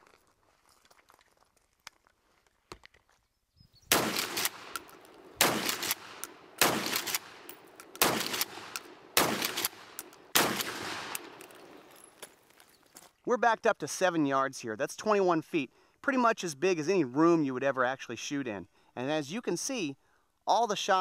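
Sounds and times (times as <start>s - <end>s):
shotgun shots echoing: 3.9s - 12.0s.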